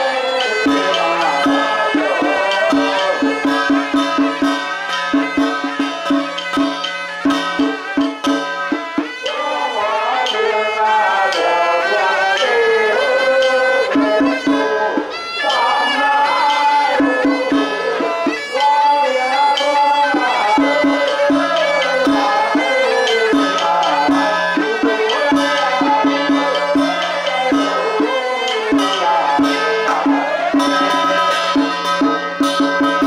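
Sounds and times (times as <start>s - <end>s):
percussion strokes: 0.0s - 33.0s
reedy wind instrument melody: 0.0s - 33.0s.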